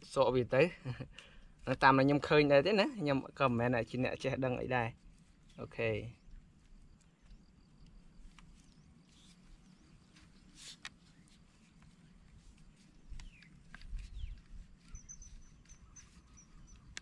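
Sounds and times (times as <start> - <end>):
small clicks: 16.7 - 17.0.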